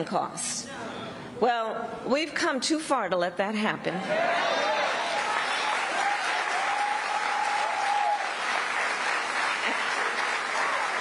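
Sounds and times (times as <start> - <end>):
crowd applauding and cheering: 4.1 - 11.0.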